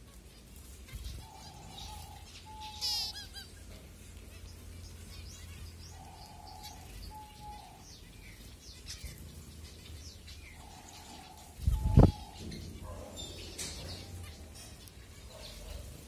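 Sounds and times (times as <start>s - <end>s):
finches chirping: 0.9s - 16.0s.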